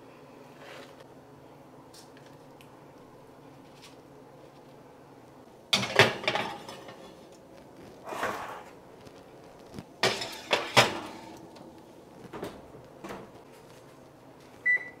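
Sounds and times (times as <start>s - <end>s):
metal tins clanking on oven racks: 5.8s - 7.2s, 10.0s - 11.5s
tin scraping along wire rack: 8.0s - 8.8s, 10.0s - 11.4s
oven door shutting: 10.0s - 13.4s.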